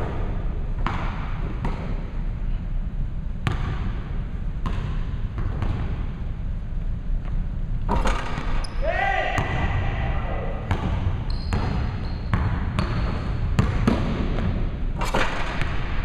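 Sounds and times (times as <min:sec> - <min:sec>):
basketball bouncing on hardwood floor: 0:03.4 - 0:04.0, 0:10.7 - 0:14.6.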